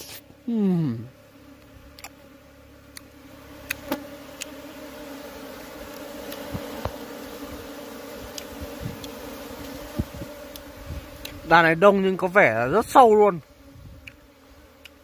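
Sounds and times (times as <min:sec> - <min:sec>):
bees buzzing: 0:00.0 - 0:15.0
sharp ticks: 0:02.9 - 0:04.6.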